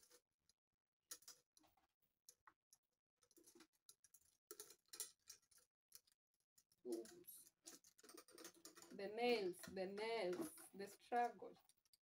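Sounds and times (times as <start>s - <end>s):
metal chain strap jingling: 6.9s - 10.6s.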